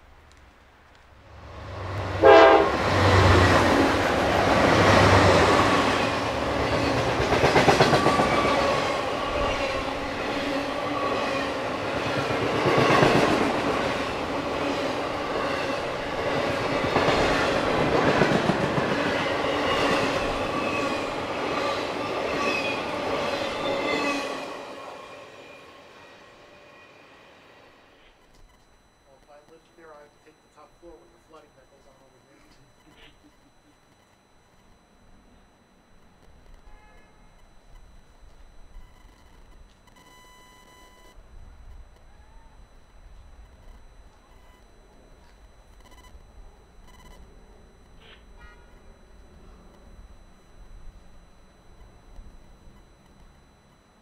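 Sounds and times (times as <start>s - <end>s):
diesel locomotives passing: 0.3s - 28.0s
train wheels rumbling on rails: 1.3s - 24.7s.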